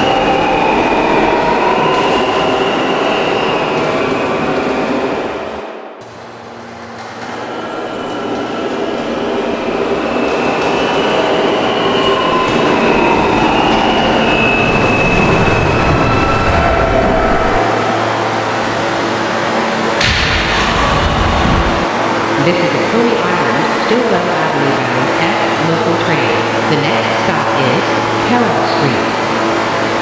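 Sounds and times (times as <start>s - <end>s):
train wheels on rail: 0.0s - 22.4s.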